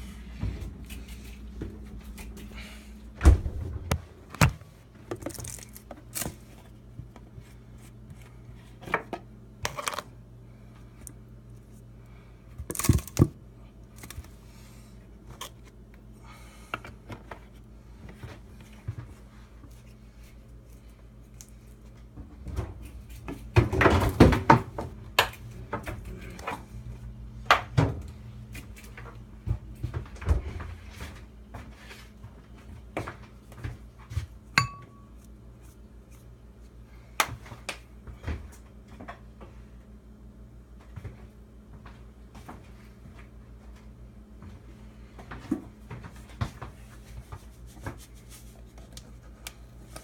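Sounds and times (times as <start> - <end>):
steady low hum: 0.0 - 50.0
dishes knocking and clattering: 34.6 - 35.0.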